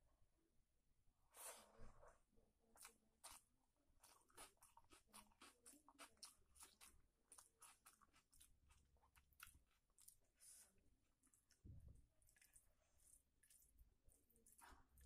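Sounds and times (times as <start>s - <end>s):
wet chewing sounds: 2.8s - 15.0s
fingers mixing rice on plate: 12.2s - 15.0s.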